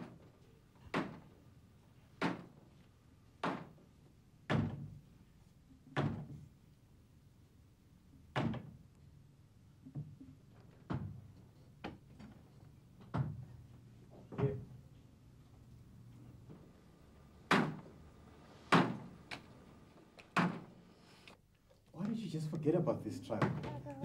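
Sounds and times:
sharp knocks and thuds: 0:17.5 - 0:17.9, 0:18.7 - 0:19.1.

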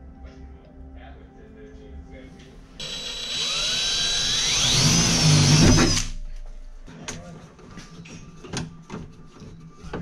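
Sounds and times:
cordless drill whining: 0:02.8 - 0:06.1.

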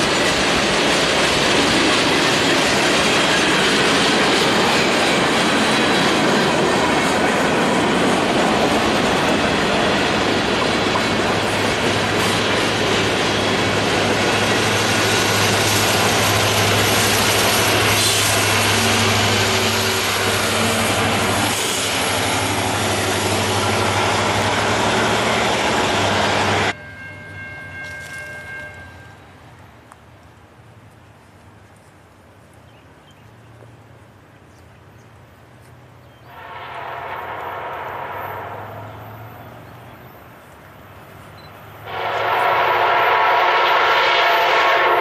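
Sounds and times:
train wheels clattering on rails: 0:00.0 - 0:29.1.

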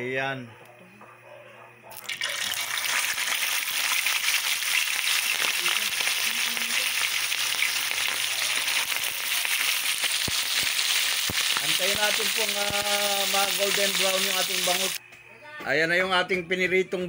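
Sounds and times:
fish sizzling in oil: 0:02.0 - 0:15.0.

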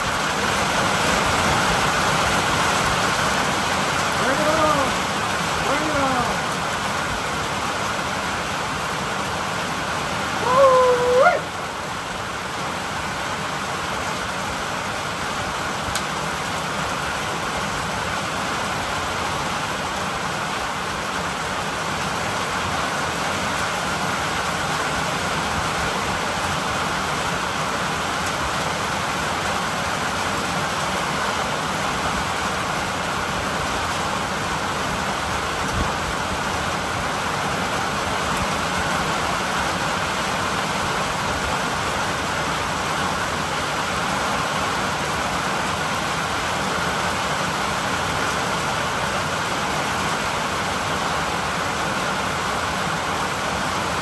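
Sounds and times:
steady rain falling: 0:00.0 - 0:54.0
short pitched call: 0:10.4 - 0:11.6.

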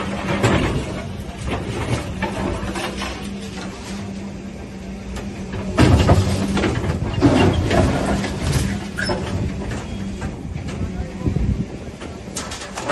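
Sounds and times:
excavator diesel engine: 0:00.0 - 0:12.9
concrete crunching and crashing: 0:05.5 - 0:10.0.

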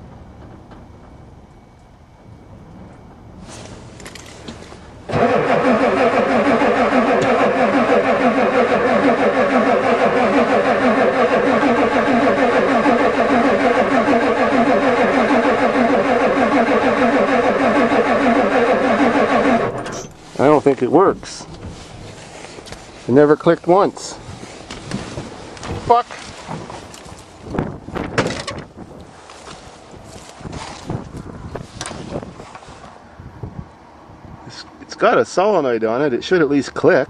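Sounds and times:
starter cranking diesel engine: 0:04.1 - 0:21.9.

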